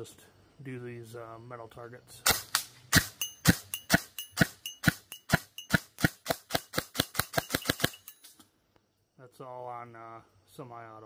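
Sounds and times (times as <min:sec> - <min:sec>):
airsoft rifle shots: 0:02.2 - 0:08.1
bbs ringing on steel targets: 0:03.0 - 0:08.4.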